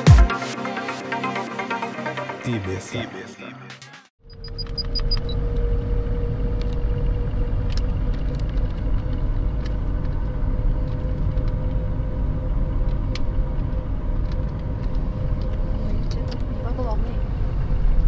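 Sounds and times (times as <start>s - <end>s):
road and engine rumble: 4.2s - 18.0s.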